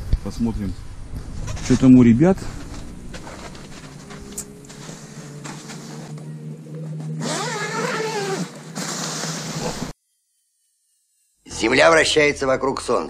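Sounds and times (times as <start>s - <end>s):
engine running: 0.8s - 9.9s
tent fabric rustling: 1.3s - 10.0s.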